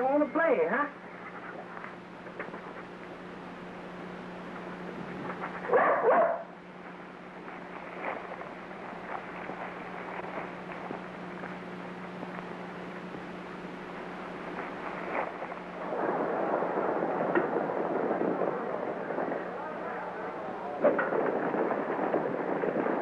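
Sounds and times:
film soundtrack hum and hiss: 0:00.0 - 0:23.0
loud noise: 0:02.5 - 0:23.0
dog barking: 0:05.5 - 0:06.6.

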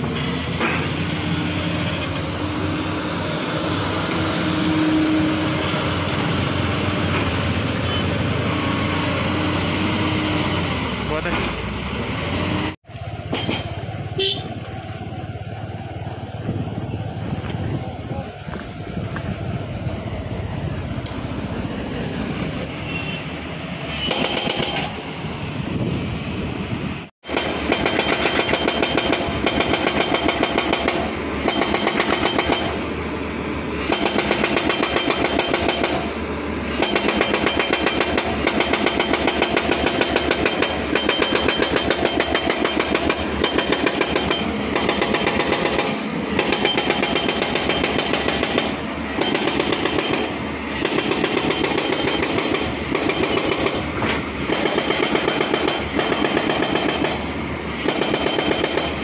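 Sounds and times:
diesel engine running: 0:00.0 - 0:22.8
hydraulic rock breaker hammering: 0:27.2 - 0:32.8, 0:36.7 - 0:57.2, 0:57.8 - 0:59.0.

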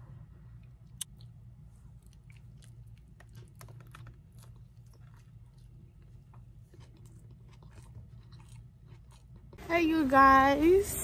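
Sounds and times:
steady low hum: 0:00.0 - 0:11.0
chewing crispy taco shell: 0:00.8 - 0:09.6.

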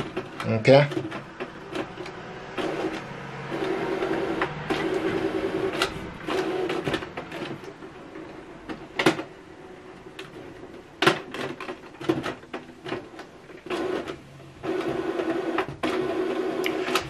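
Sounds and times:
printer motor whirring: 0:00.0 - 0:17.0.

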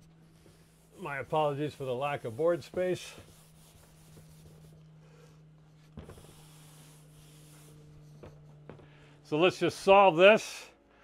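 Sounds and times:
chalk writing on board: 0:00.0 - 0:08.7
eraser wiping chalkboard: 0:00.0 - 0:08.7
low hum: 0:00.0 - 0:11.0.

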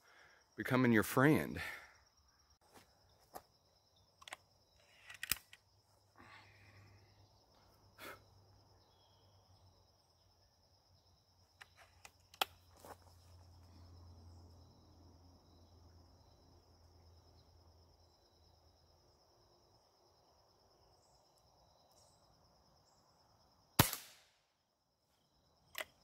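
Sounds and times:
crickets trilling: 0:00.0 - 0:23.8, 0:24.8 - 0:26.0
air rifle being cocked: 0:04.2 - 0:05.6.

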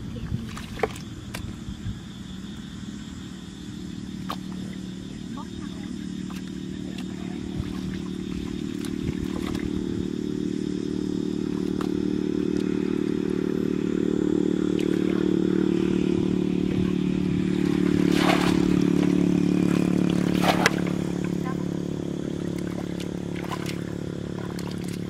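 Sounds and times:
engine humming steadily: 0:00.0 - 0:25.0
water splashing from bucket: 0:00.2 - 0:01.5, 0:06.3 - 0:09.9, 0:11.4 - 0:13.0, 0:14.7 - 0:15.3, 0:17.4 - 0:25.0.

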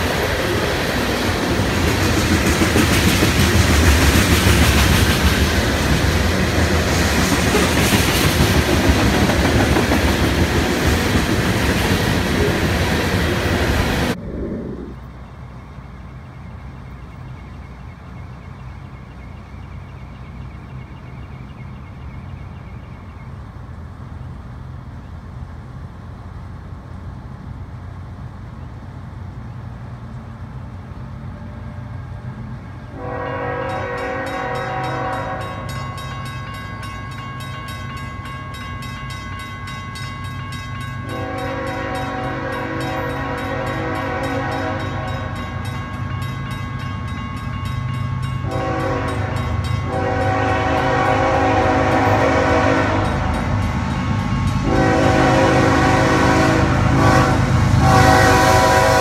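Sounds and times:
diesel locomotive rumble: 0:00.0 - 0:59.0
locomotive air horn blasts: 0:32.9 - 0:35.7, 0:41.0 - 0:45.4, 0:48.4 - 0:53.4, 0:54.6 - 0:59.0.

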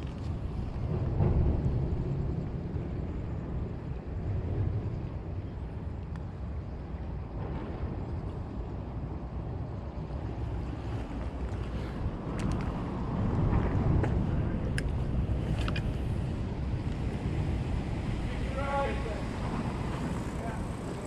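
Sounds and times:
low rumbling background noise: 0:00.0 - 0:21.0.

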